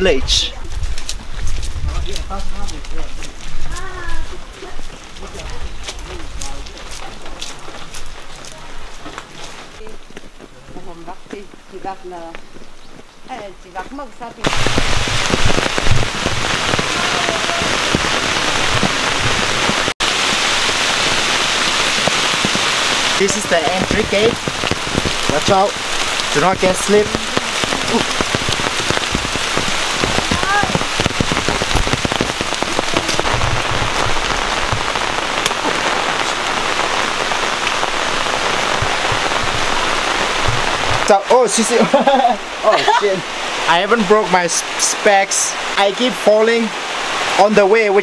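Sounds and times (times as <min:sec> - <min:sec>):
rain falling: 0:00.0 - 0:48.0
low thumps: 0:14.4 - 0:41.3.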